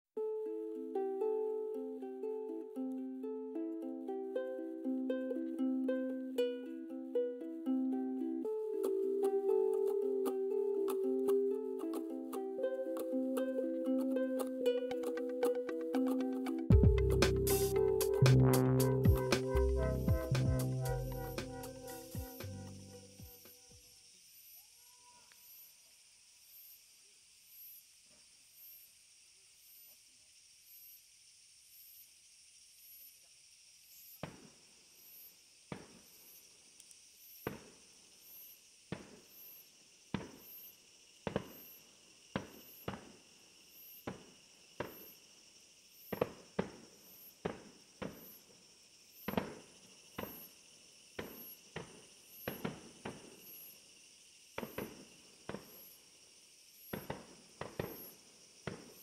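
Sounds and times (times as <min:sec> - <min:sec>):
insects chirring: 0:00.4 - 0:59.0
fireworks shells bursting: 0:51.2 - 0:53.6, 0:54.6 - 0:56.0, 0:56.9 - 0:59.0.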